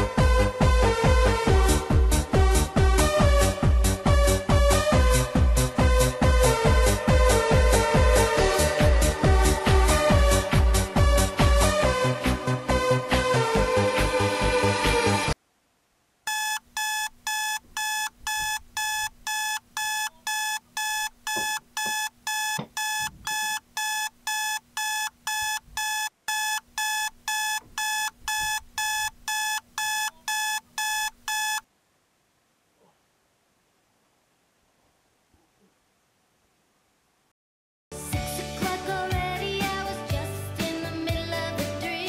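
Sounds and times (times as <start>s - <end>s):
phone alarm beeping: 16.3s - 31.7s.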